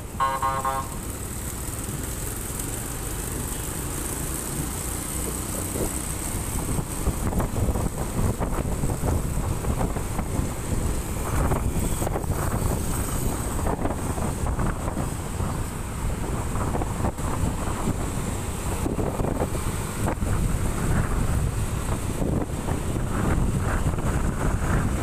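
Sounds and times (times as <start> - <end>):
motorcycle engine rumble: 0.0 - 25.0
road traffic: 0.0 - 25.0
wind buffeting microphone: 5.3 - 25.0.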